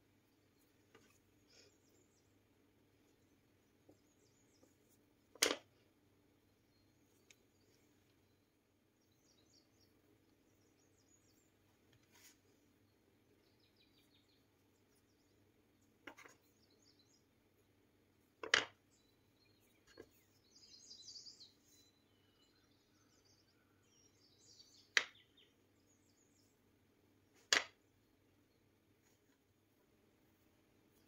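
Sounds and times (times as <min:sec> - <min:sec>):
scratchy rustle of dough: 0:12.0 - 0:12.7.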